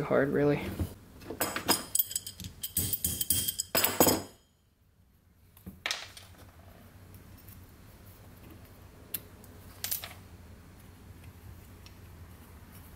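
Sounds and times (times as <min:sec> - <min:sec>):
small metal parts clinking: 0:01.4 - 0:04.4.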